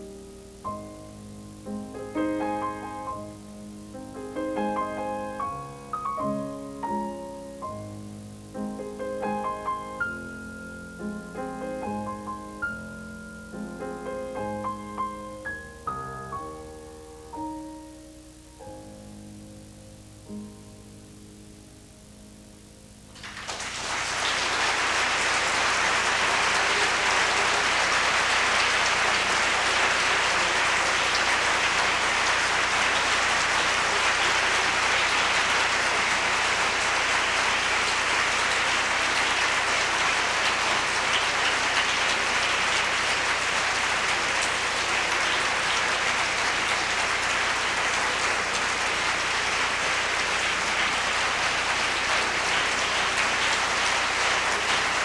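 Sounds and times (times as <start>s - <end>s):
audience applauding: 23.2s - 55.0s.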